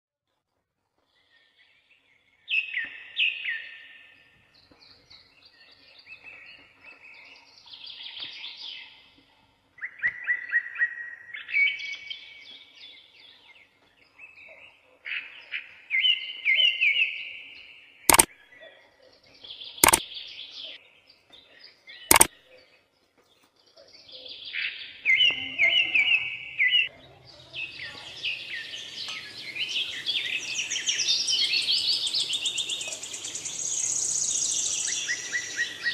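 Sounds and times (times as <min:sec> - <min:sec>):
birds chirping and trilling: 0:09.8 - 0:35.9.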